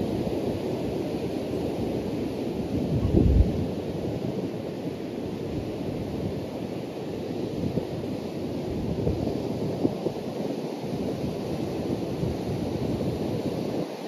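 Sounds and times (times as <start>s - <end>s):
surf breaking on beach: 0.0s - 6.5s
wind buffeting microphone: 2.0s - 4.5s.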